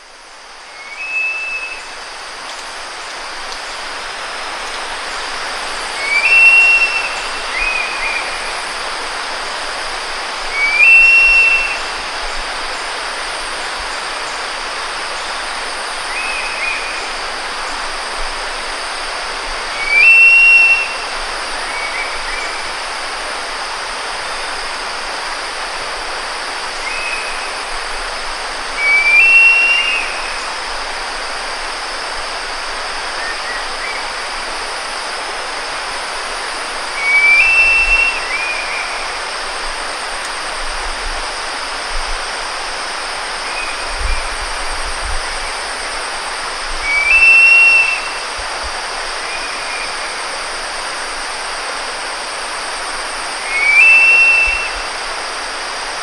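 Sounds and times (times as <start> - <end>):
steady hiss: 0.0 - 56.0
eagle shrill calls: 53.5 - 54.8.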